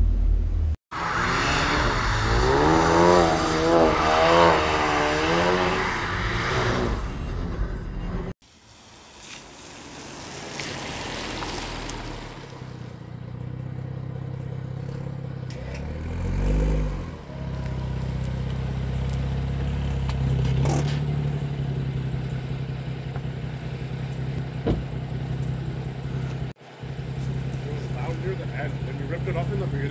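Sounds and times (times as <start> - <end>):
exhaust crack: 0.0 - 29.9
car engine idling burble: 17.2 - 29.9.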